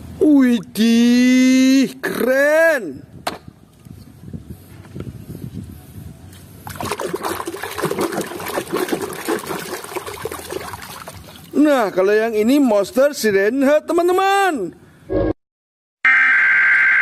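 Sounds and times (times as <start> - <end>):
hand splashing in tub of water: 6.7 - 11.6.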